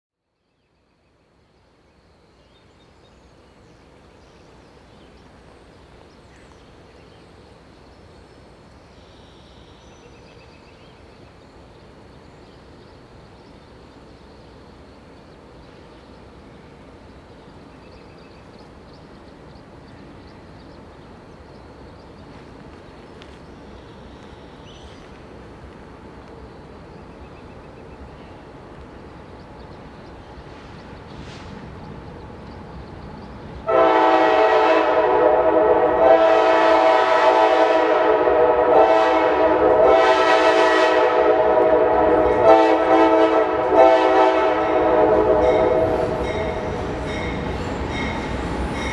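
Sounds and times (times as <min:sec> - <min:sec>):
diesel freight train rumble: 0:02.6 - 0:48.9
birds chirping: 0:26.0 - 0:33.7.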